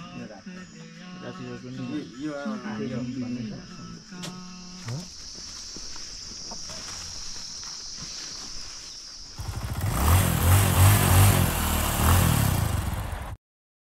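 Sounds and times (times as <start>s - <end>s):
insects trilling: 0.0s - 10.2s.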